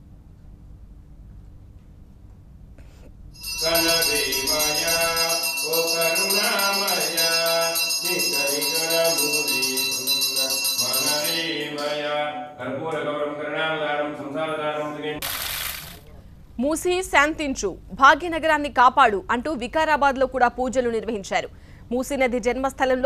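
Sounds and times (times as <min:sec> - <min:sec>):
high ringing tone: 0:03.4 - 0:12.2
devotional chanting over music: 0:03.6 - 0:15.2.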